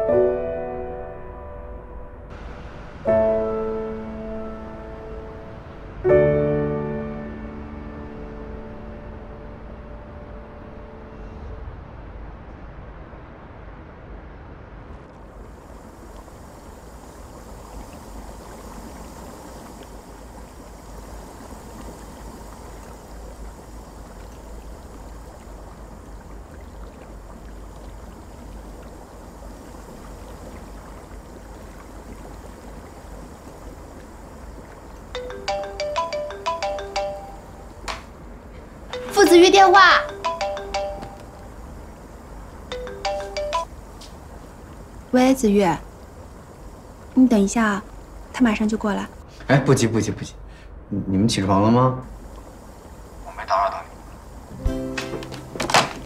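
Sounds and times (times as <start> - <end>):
garment steamer hissing: 15.5 - 26.0
mobile phone ringtone melody: 35.2 - 37.7, 38.9 - 39.3, 39.9 - 41.4, 42.7 - 43.7.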